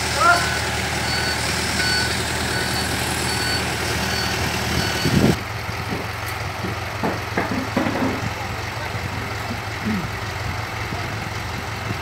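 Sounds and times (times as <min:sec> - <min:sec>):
truck engine idling: 0:00.0 - 0:12.0
reversing alarm beeps: 0:00.5 - 0:05.3.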